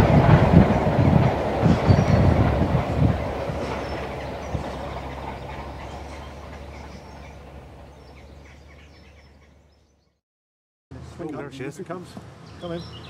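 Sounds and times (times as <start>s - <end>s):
train wheels rumbling on rails: 0.0s - 9.4s.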